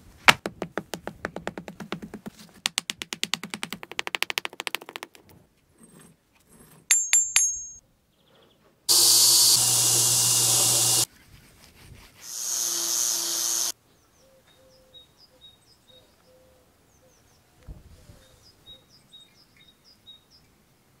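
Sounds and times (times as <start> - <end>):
ringing metal strikes: 6.9 - 7.8
power tool grinding metal: 8.9 - 11.1, 12.3 - 13.7.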